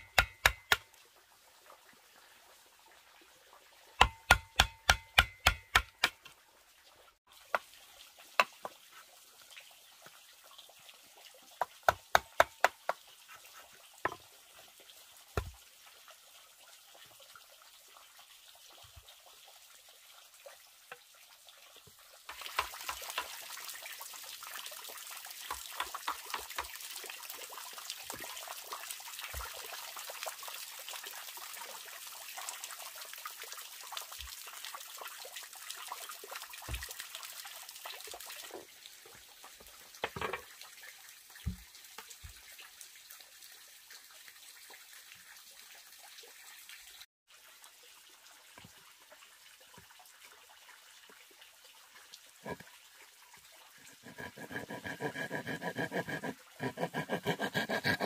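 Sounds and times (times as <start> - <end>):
chisel striking bamboo: 0.0 - 0.9, 4.0 - 6.3, 11.6 - 12.8, 22.3 - 23.3
water trickling into pond: 0.0 - 58.0.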